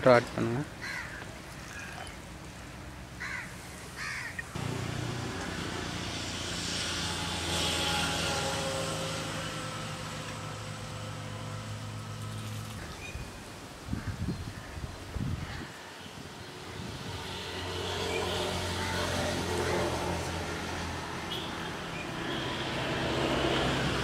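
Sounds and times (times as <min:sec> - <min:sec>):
passing vehicle engine: 0:04.5 - 0:12.9, 0:16.5 - 0:24.0.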